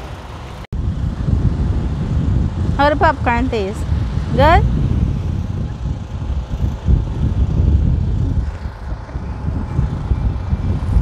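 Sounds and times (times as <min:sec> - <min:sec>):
wind buffeting microphone: 0:00.0 - 0:11.0.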